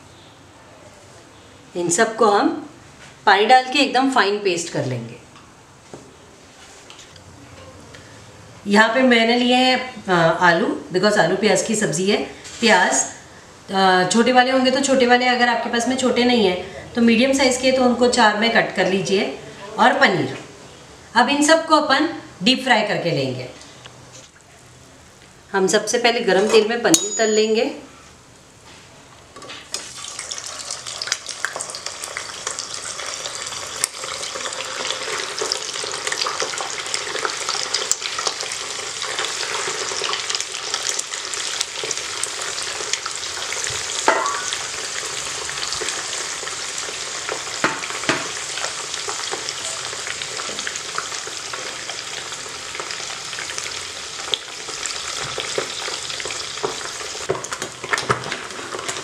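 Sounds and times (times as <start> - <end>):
cheese deep-frying in oil: 29.7 - 59.0.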